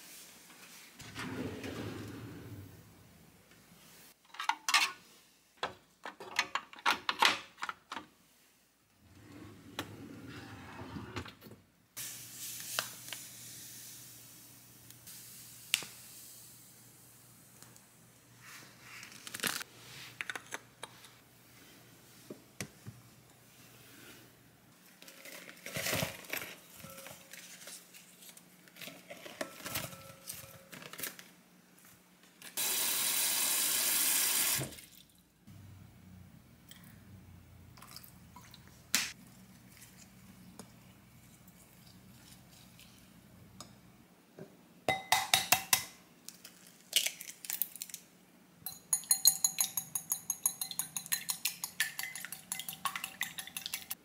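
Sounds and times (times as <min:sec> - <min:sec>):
clinks on glass bowl: 0:48.7 - 0:53.9.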